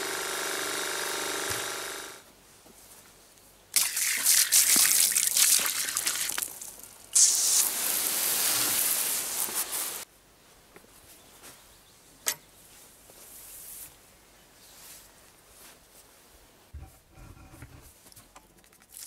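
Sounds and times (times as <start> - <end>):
pressure washer humming: 0.0 - 2.2, 7.2 - 10.0
water jetting and splashing: 3.8 - 10.0.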